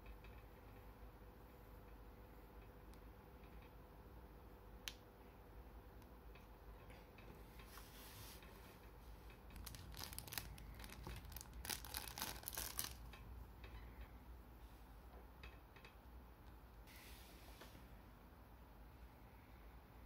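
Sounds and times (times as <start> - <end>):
plastic bag crinkling: 9.5 - 13.1.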